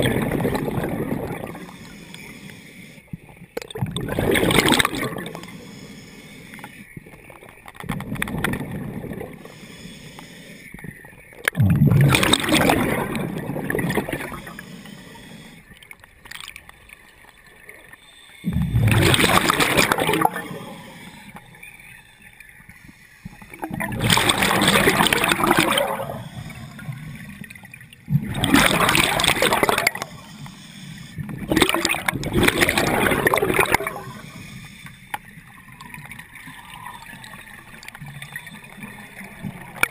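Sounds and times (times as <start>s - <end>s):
exhaled bubbles gurgling underwater: 0.0s - 39.9s
regulator breathing: 1.5s - 3.2s, 5.4s - 7.0s, 9.4s - 11.0s, 14.2s - 15.9s, 19.9s - 23.6s, 29.9s - 31.4s, 33.7s - 35.4s.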